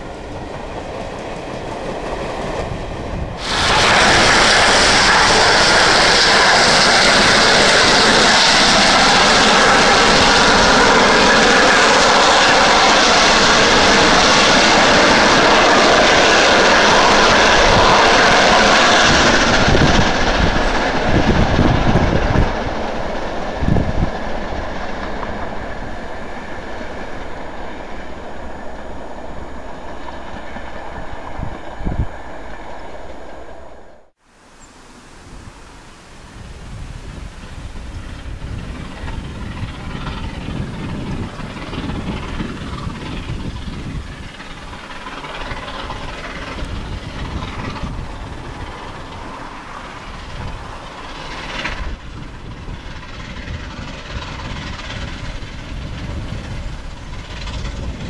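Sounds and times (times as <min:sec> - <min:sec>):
steam train passing: 0:00.0 - 0:58.0.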